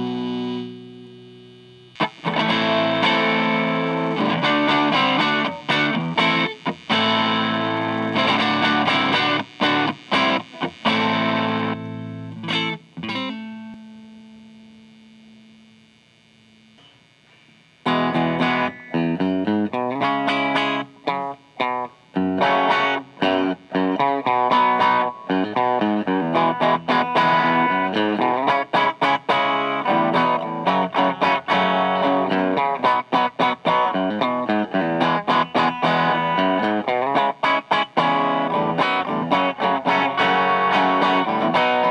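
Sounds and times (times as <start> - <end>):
distorted electric guitar chords: 0.0 - 41.9.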